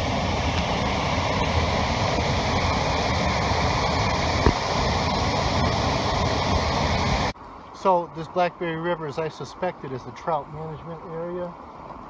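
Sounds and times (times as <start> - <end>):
water rushing over dam spillway: 0.0 - 7.3.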